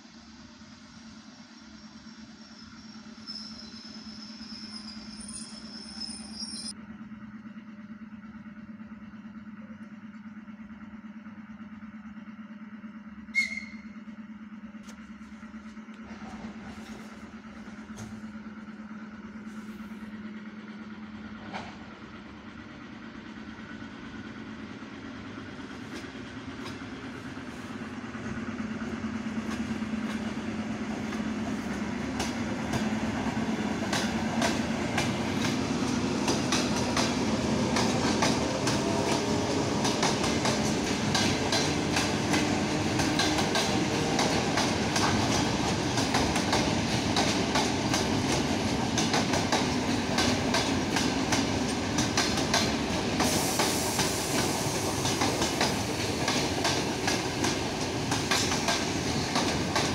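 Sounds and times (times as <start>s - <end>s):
electric train humming: 0.0s - 59.9s
train wheels clicking over rail joints: 14.7s - 19.7s, 21.2s - 22.3s, 25.2s - 59.9s.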